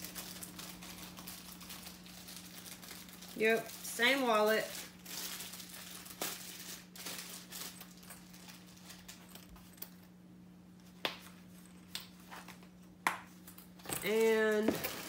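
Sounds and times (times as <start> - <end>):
tissue paper rustling: 0.0 - 9.3.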